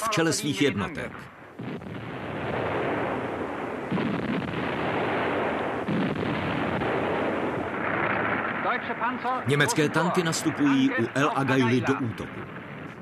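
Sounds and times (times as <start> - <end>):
artillery gunfire: 1.0 - 13.0
heavy gun reports: 8.9 - 12.5.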